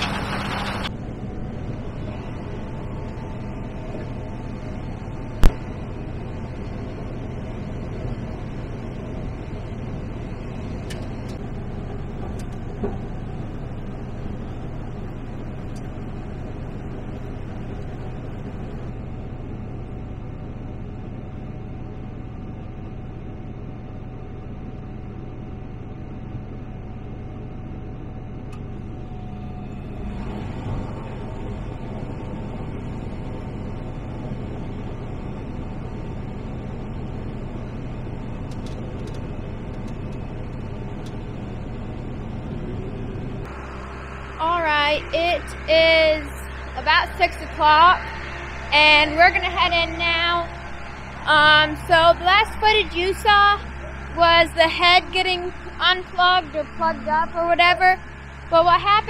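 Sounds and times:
combine harvester drone: 0:00.0 - 0:59.0.

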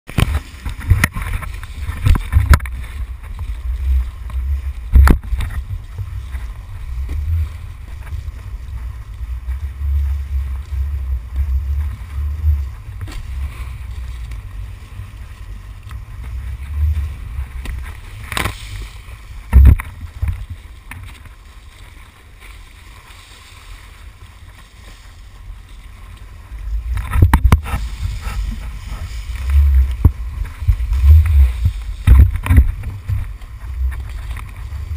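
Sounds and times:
knocks and splashes on camera: 0:00.1 - 0:03.6, 0:04.6 - 0:06.4, 0:19.4 - 0:21.3, 0:26.9 - 0:34.8
water rushing: 0:00.1 - 0:34.9
wind buffeting camera: 0:00.1 - 0:34.9.

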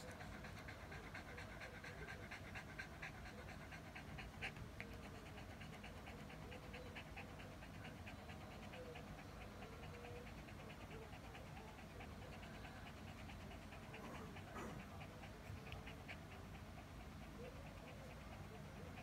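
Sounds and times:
dog panting quickly: 0:00.0 - 0:19.0.

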